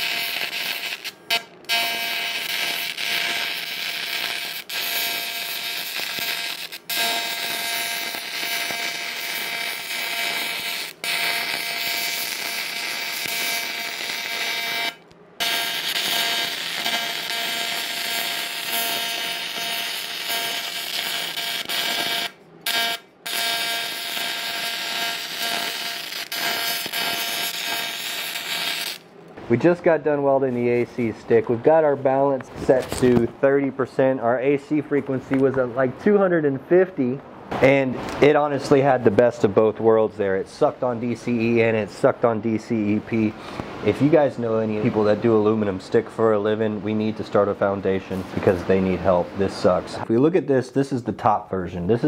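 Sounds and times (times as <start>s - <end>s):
welding arc buzzing: 0.0s - 29.1s.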